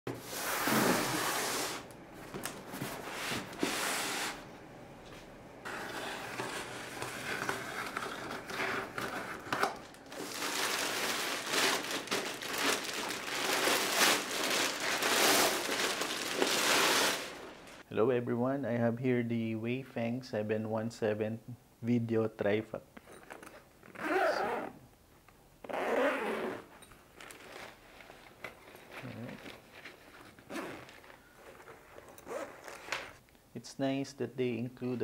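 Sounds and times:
plastic sleeve crinkling: 5.7s - 17.8s, 27.1s - 33.2s.

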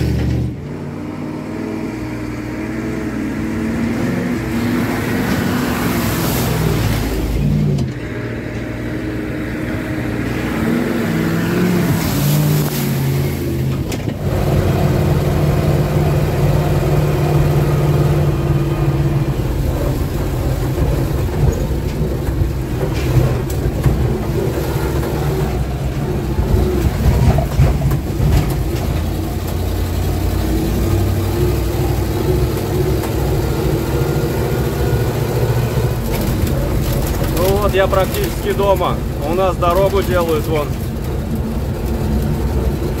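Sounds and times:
truck engine running: 2.0s - 43.0s.

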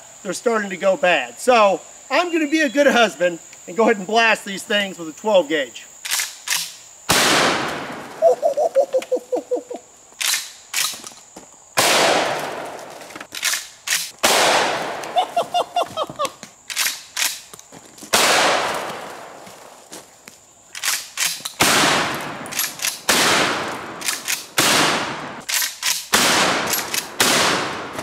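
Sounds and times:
shotgun blasts echoing: 7.1s - 8.1s, 11.8s - 12.8s, 14.2s - 15.1s, 18.1s - 19.4s, 21.6s - 25.4s, 26.1s - 28.0s.

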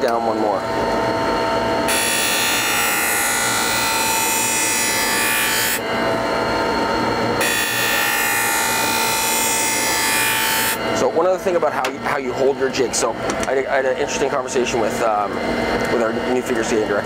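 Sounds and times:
machine steady hum: 0.0s - 17.0s
grinding wheel on steel blade: 1.9s - 5.8s, 7.4s - 11.1s.

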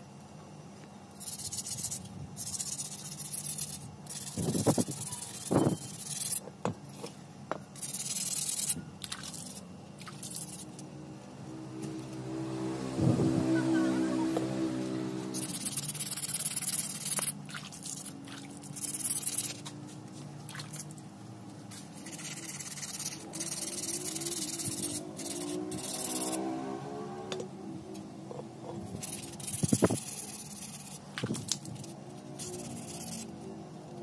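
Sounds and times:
sandpaper scraping metal: 1.2s - 6.4s, 15.3s - 17.3s, 21.8s - 26.4s, 28.9s - 31.0s, 31.7s - 33.3s
water splashing in bucket: 17.5s - 18.8s, 20.5s - 20.9s.

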